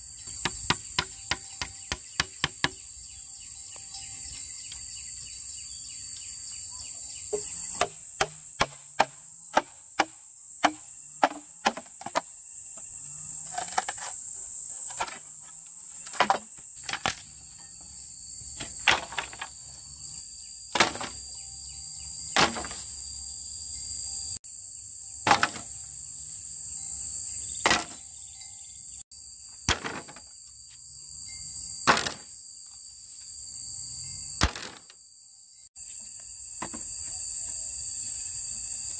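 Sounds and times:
insects droning: 0.0 - 38.9
axe chopping wood: 0.4 - 2.8, 7.4 - 12.3, 16.1 - 17.3, 20.7 - 21.2, 22.4 - 22.9, 25.2 - 25.7, 27.6 - 28.0, 29.7 - 30.3, 31.8 - 32.3, 34.4 - 34.9.

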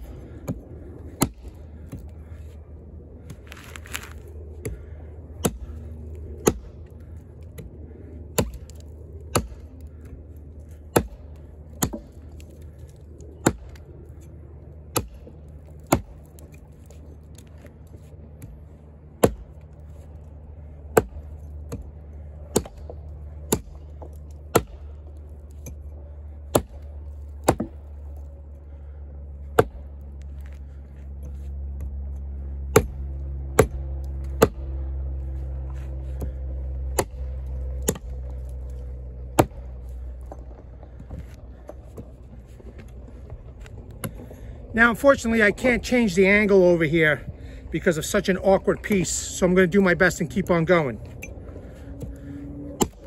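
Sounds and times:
low rumble: 0.0 - 53.0
axe chopping log: 0.2 - 2.0, 5.4 - 6.7, 8.3 - 10.0, 10.7 - 13.8, 14.9 - 17.6, 19.2 - 19.6, 20.9 - 21.9, 22.5 - 25.8, 26.5 - 27.9, 29.5 - 30.0, 32.7 - 34.8, 36.1 - 38.3, 39.2 - 42.1, 52.0 - 53.0.

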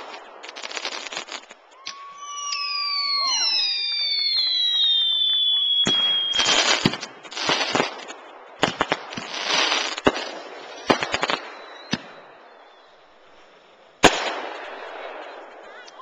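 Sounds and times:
firework bangs: 0.0 - 16.0
firework crackling: 0.0 - 16.0
firework whistle: 1.3 - 7.8, 11.0 - 13.4.

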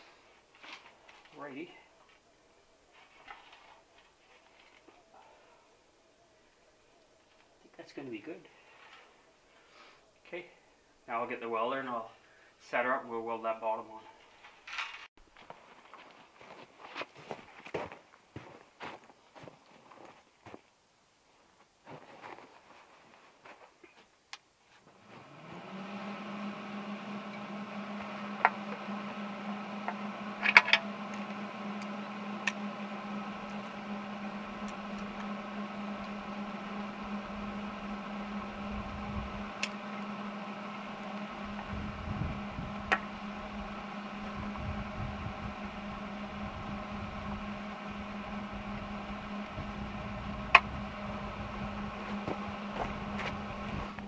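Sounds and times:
welder motor and fan humming: 0.0 - 9.1, 24.9 - 54.0.

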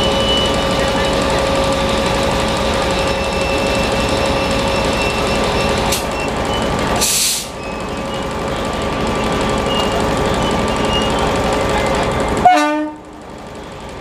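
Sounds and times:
locomotive machinery humming: 0.0 - 14.0
air hiss: 7.0 - 7.5
locomotive horn toot: 12.4 - 13.1.

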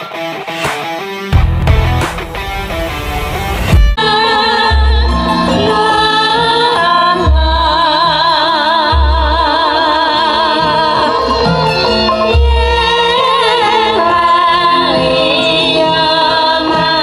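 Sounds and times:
dense guitar passage: 0.0 - 4.0
deep bass notes: 1.3 - 4.0
person singing with vibrato: 4.0 - 17.0.

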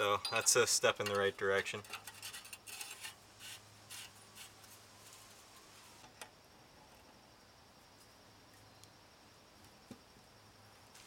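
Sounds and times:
metal scraping and rubbing: 0.3 - 6.0.

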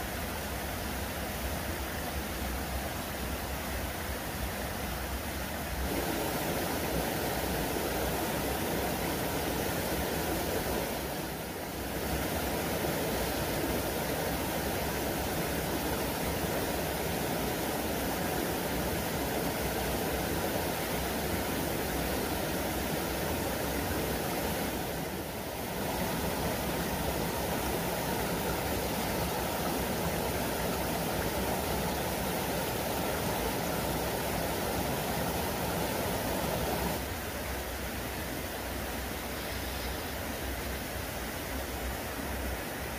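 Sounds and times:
waterfall pouring into pool: 5.8 - 37.0.

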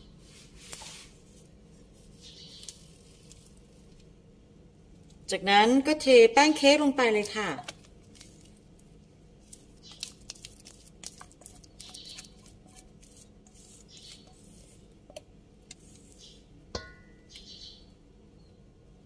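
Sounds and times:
soft taps and scrapes: 0.4 - 1.5
batter being poured: 8.0 - 16.2.

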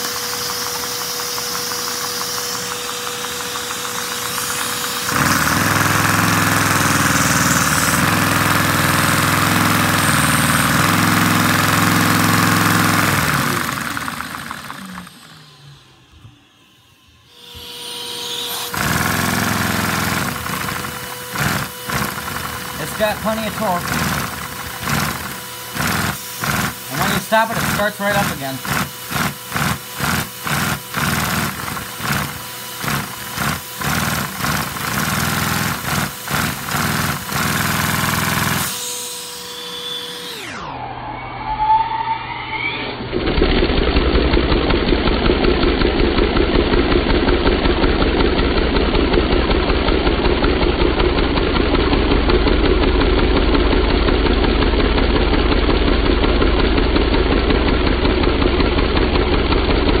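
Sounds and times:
toy engine clattering: 0.0 - 15.2, 18.7 - 38.7
vacuum cleaner hum: 0.0 - 40.8.

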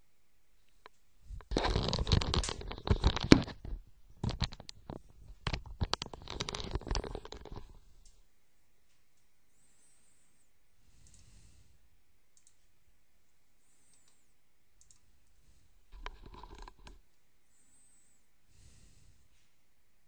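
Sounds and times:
rustling and scraping with clicks: 0.7 - 8.2, 15.9 - 17.1.

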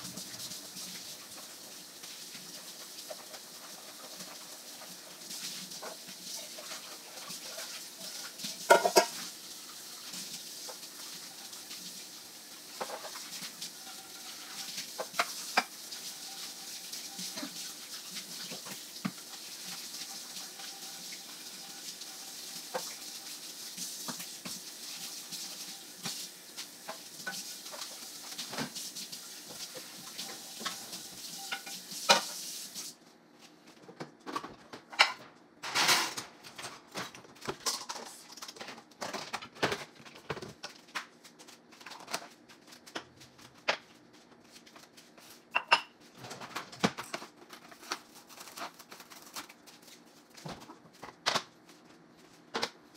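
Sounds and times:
tap water running: 0.0 - 33.0
dishes clinking: 8.7 - 9.2, 34.9 - 36.2, 45.5 - 46.0.

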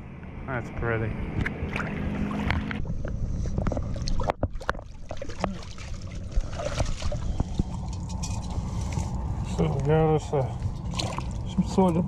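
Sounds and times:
wind rumbling on microphone: 1.1 - 12.0
water sloshing from wading: 1.3 - 12.0.

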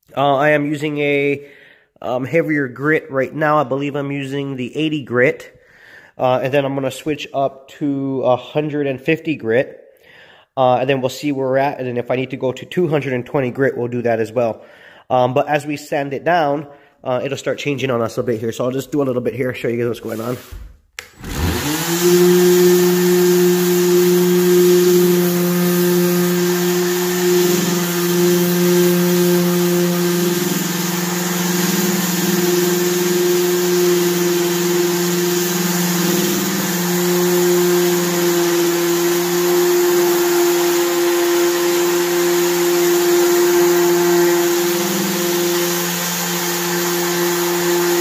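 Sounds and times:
orbital sander whirring on wood: 21.1 - 48.0.

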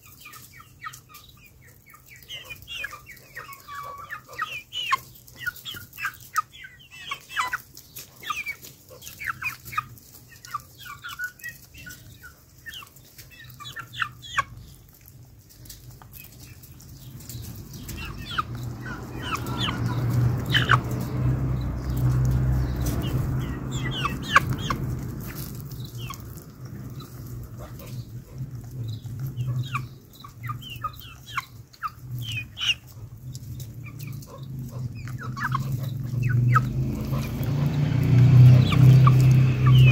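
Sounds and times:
chickens clucking: 0.0 - 39.9
low rumble: 17.1 - 29.9.

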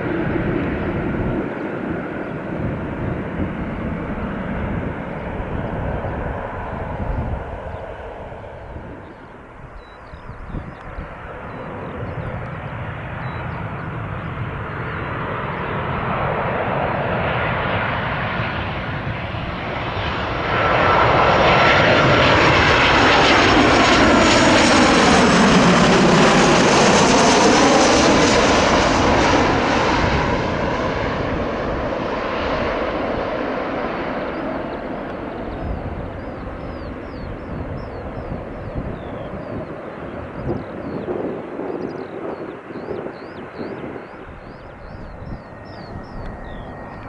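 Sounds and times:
airliner passing overhead: 0.0 - 47.0.

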